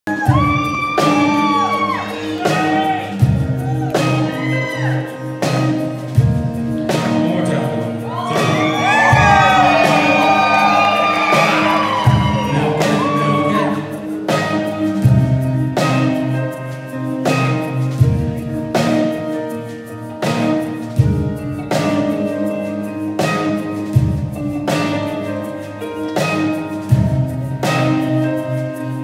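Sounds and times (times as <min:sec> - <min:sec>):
audience whooping and cheering: 0:00.1 - 0:05.2, 0:08.0 - 0:14.1
acoustic band playing: 0:00.1 - 0:29.0.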